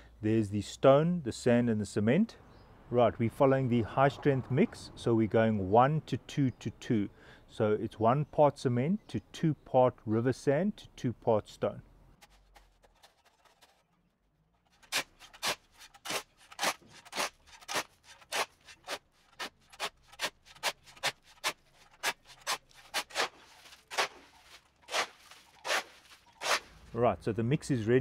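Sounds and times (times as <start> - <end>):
shovel scraping on bricks and sand: 12.2 - 27.0.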